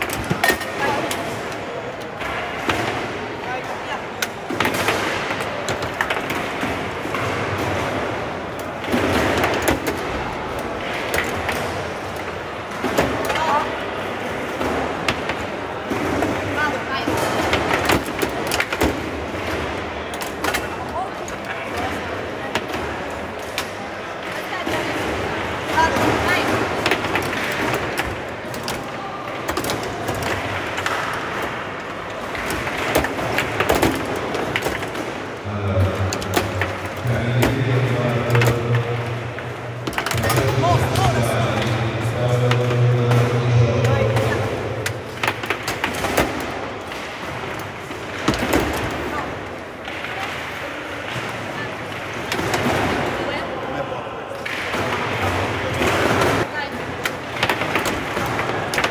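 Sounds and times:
ball clacking on plastic players: 0:00.0 - 0:53.3, 0:54.4 - 0:58.9
steady background noise: 0:00.0 - 0:58.9
foosball clicks and knocks: 0:54.4 - 0:58.9.

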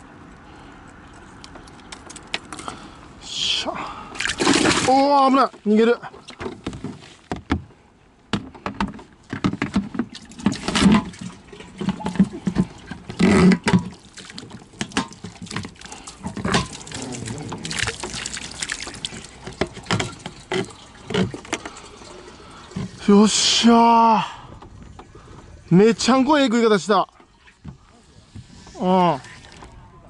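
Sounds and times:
water splashing: 0:03.7 - 0:06.4, 0:10.1 - 0:24.2, 0:26.0 - 0:29.8
knocks and thumps from plastic tub: 0:06.2 - 0:07.7, 0:08.3 - 0:21.8.

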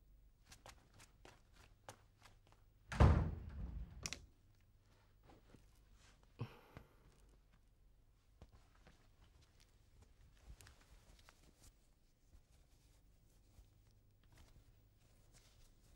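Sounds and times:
wooden door thudding shut: 0:02.9 - 0:04.1
door latch click: 0:02.9 - 0:04.2.

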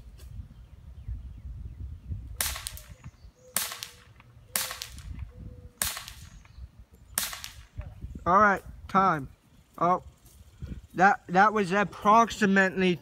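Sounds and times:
bb gun shots: 0:02.4 - 0:06.4, 0:07.2 - 0:07.7.

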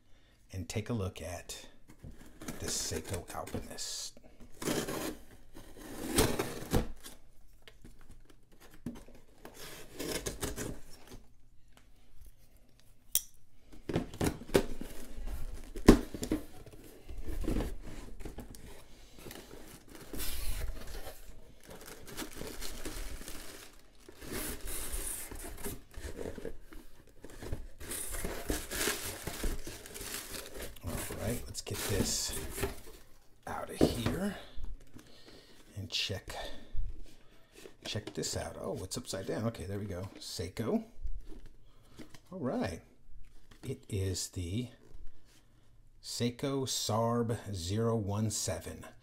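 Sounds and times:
tape tearing: 0:08.5 - 0:11.2, 0:14.3 - 0:32.9
plastic packing crinkling: 0:14.4 - 0:35.3.

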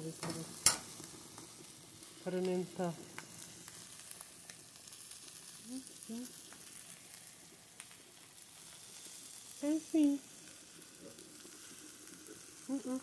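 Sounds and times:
fish sizzling on a grill: 0:00.0 - 0:13.0
wood fire crackling: 0:00.0 - 0:13.0
person murmuring: 0:12.7 - 0:13.0.

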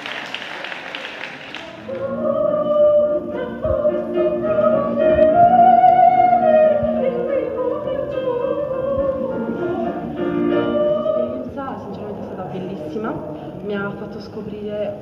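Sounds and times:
woman singing opera: 0:01.9 - 0:12.1.

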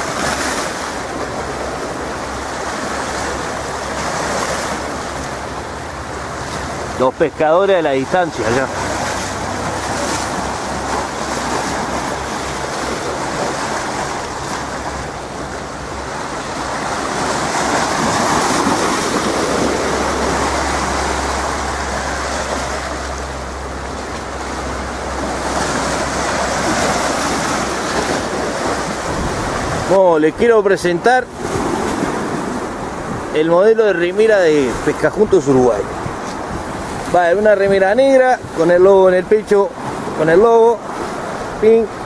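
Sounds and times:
small waves splashing: 0:00.0 - 0:42.0
wind on microphone: 0:08.1 - 0:29.9, 0:31.3 - 0:33.4, 0:34.6 - 0:39.1.

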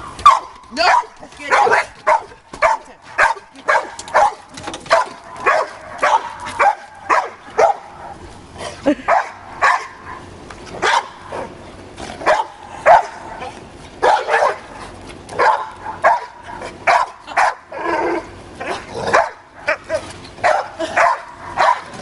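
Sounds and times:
dog barking: 0:00.2 - 0:07.9, 0:09.1 - 0:10.0, 0:10.8 - 0:11.2, 0:12.2 - 0:13.2, 0:14.0 - 0:14.6, 0:15.4 - 0:17.6, 0:19.1 - 0:19.4, 0:20.4 - 0:22.0.

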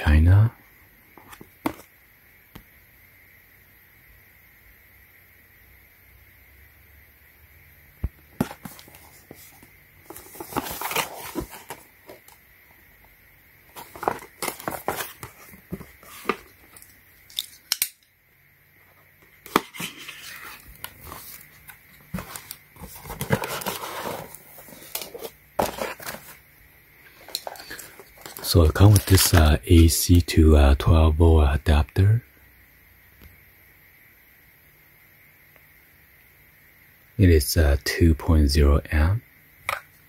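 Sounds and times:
cardboard box being opened: 0:08.4 - 0:12.3, 0:13.7 - 0:16.8, 0:19.4 - 0:26.4, 0:27.4 - 0:29.4.

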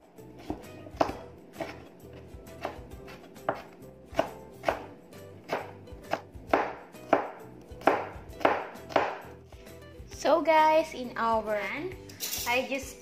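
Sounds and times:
knife chopping on wooden board: 0:00.4 - 0:09.4.

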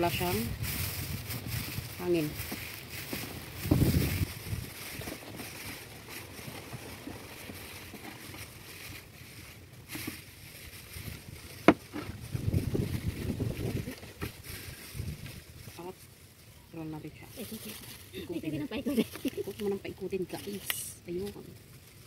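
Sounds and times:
low rumble: 0:00.0 - 0:08.0, 0:10.4 - 0:15.8
plastic wrap crinkling: 0:00.0 - 0:22.0.

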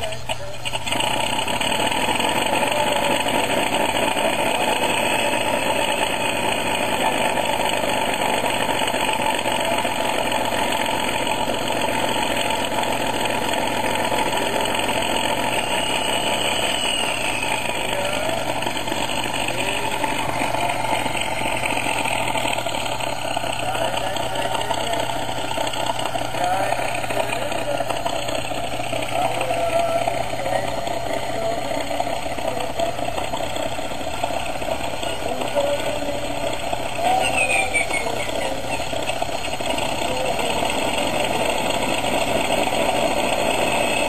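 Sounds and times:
engine drone: 0:00.0 - 0:44.0.

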